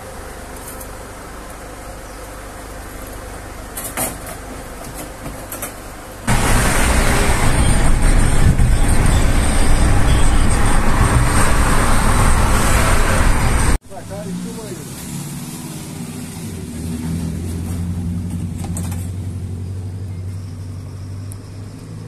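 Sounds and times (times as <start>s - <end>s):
quiet outdoor ambience: 0.0s - 7.4s
road and engine noise in car: 0.0s - 22.0s.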